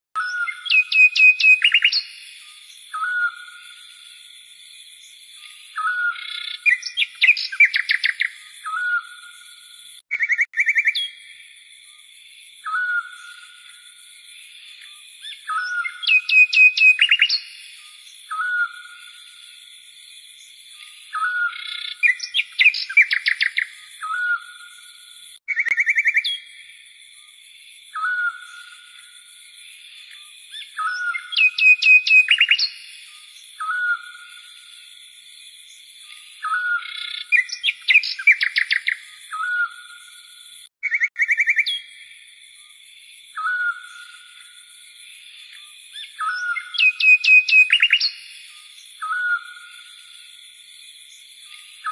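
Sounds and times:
high sharp bird chirps: 0.2 - 2.3, 5.8 - 9.1, 10.1 - 11.1, 15.2 - 17.6, 25.4 - 26.4, 30.6 - 32.9, 40.8 - 41.8, 46.0 - 48.4.

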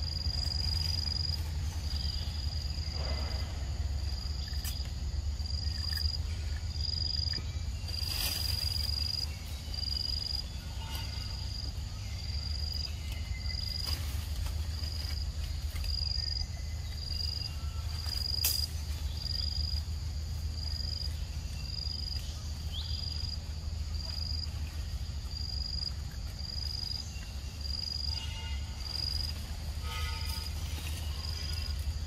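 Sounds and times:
low rumble: 0.0 - 21.6
insect chirping: 0.0 - 32.0.

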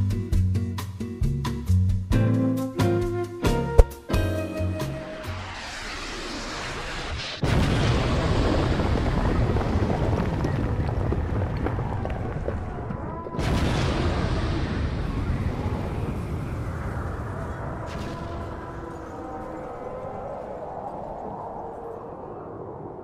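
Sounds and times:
explosion booms: 5.4 - 19.1.

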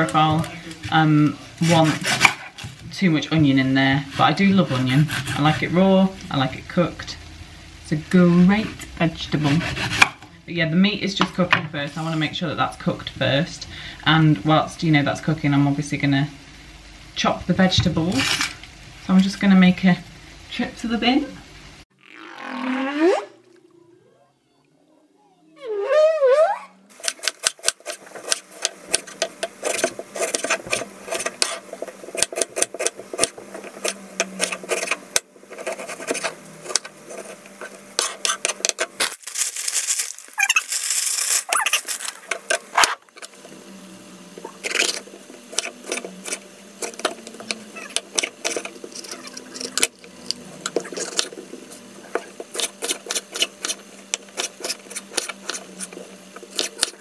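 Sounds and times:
knife chopping on wooden board: 9.6 - 10.2
plastic bag crinkling: 39.0 - 42.4.

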